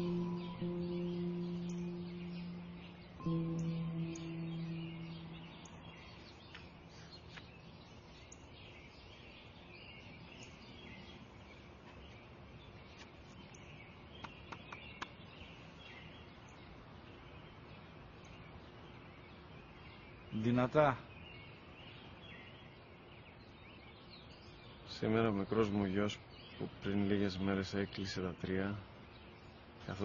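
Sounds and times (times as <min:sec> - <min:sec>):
held musical tone: 0:00.0 - 0:06.3
small birds chirping: 0:00.0 - 0:30.0.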